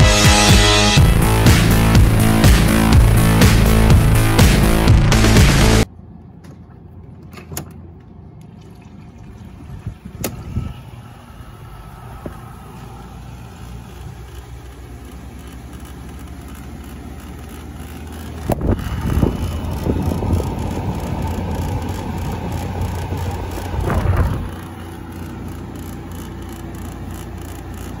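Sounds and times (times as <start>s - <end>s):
air conditioner humming: 5.8s - 28.0s.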